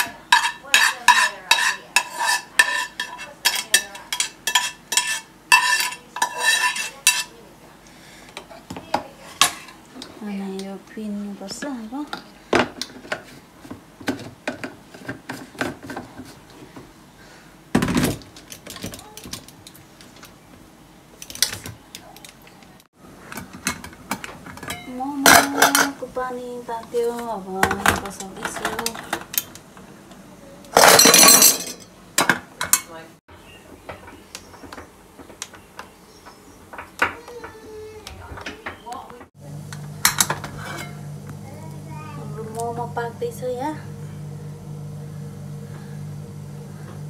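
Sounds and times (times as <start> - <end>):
metal pot clattering and scraping: 0.0 - 7.3, 23.4 - 26.0, 40.0 - 41.1.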